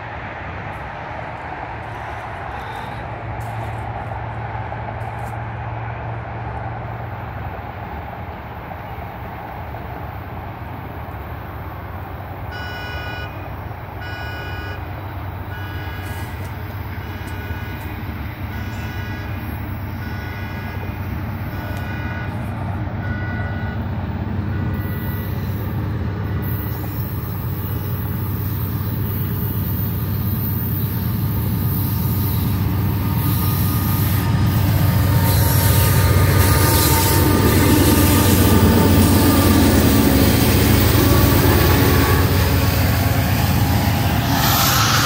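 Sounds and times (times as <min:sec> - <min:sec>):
diesel locomotive rumble: 0:00.0 - 0:45.0
high ringing tone: 0:44.1 - 0:45.0.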